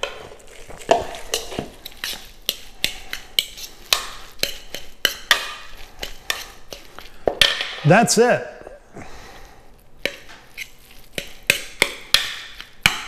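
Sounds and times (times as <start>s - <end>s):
metal fork scraping a bowl: 0.0s - 7.6s, 10.0s - 11.9s.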